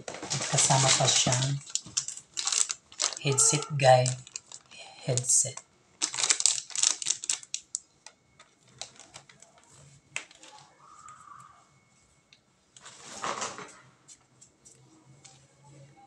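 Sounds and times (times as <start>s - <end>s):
plastic packaging crinkling: 0.0s - 11.2s.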